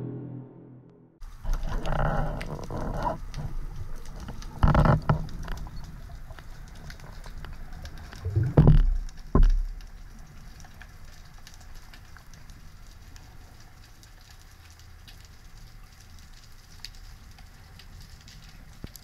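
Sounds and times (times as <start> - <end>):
faint crackling clicks: 1.2 - 19.0
low underwater rumble: 1.3 - 10.2.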